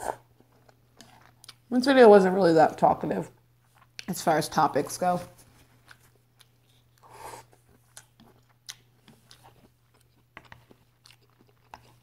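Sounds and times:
close-up chewing: 0:00.0 - 0:01.7, 0:05.5 - 0:12.0.

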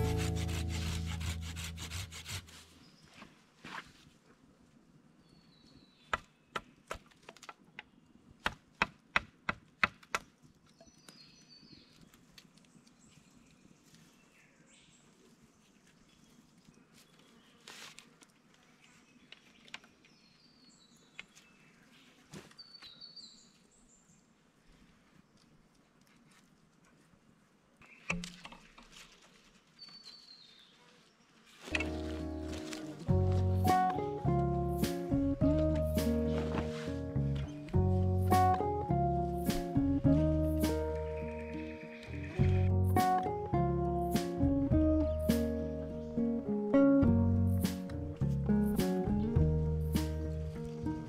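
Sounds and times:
acoustic guitar music: 0:00.0 - 0:02.2, 0:31.7 - 0:51.0.

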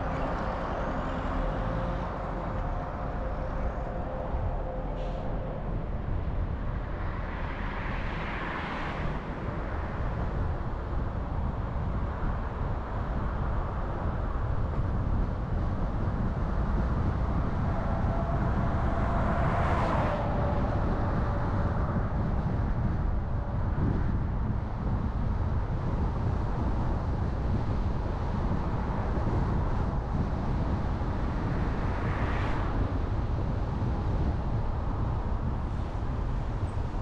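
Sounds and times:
car engine and tyre rumble: 0:00.0 - 0:37.0.

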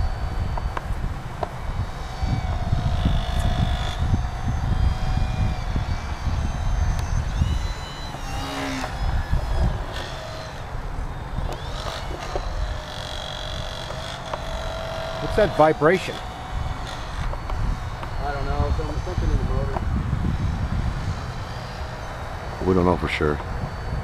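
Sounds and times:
electric model plane motor whining: 0:00.0 - 0:24.0
wind rumble on microphone: 0:00.0 - 0:24.0.

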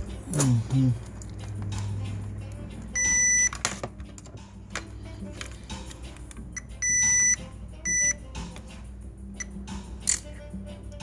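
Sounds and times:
multimeter beeping: 0:03.0 - 0:03.6, 0:06.6 - 0:08.2.

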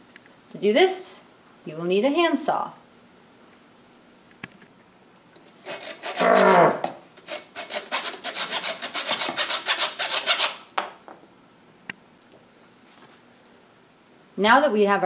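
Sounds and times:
handsaw cutting wood: 0:05.6 - 0:10.6
person growling: 0:06.2 - 0:06.9.

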